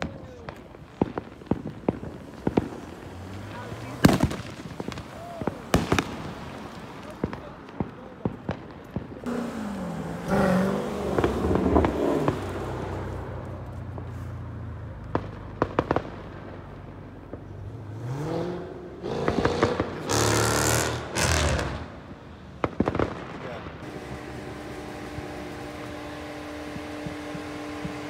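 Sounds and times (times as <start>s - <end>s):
firecracker pops: 0.0s - 9.4s, 11.0s - 14.2s, 15.0s - 17.6s, 19.2s - 20.2s, 22.6s - 23.6s
car engine revving: 1.2s - 6.1s, 9.2s - 14.0s, 17.3s - 22.1s, 23.8s - 28.0s.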